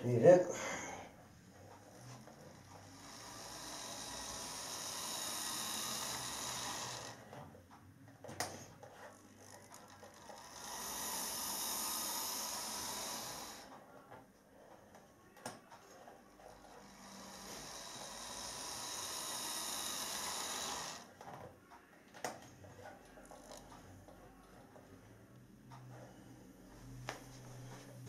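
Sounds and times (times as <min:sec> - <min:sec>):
model train motor whirring: 0:01.5 - 0:07.2, 0:09.4 - 0:13.8, 0:16.4 - 0:21.1.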